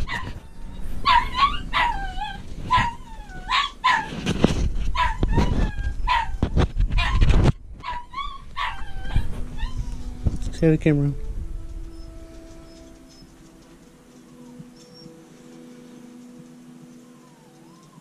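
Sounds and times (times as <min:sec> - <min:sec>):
puppy whining and yelping: 0:00.0 - 0:10.2, 0:17.0 - 0:18.0.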